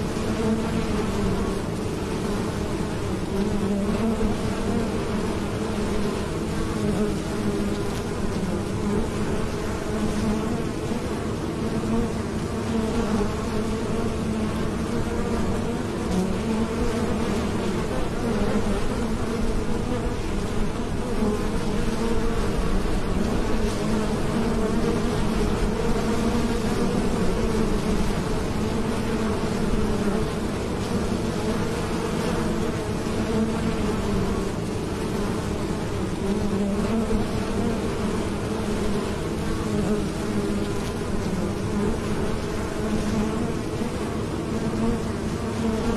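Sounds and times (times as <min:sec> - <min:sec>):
honeybees buzzing: 0:00.0 - 0:45.9.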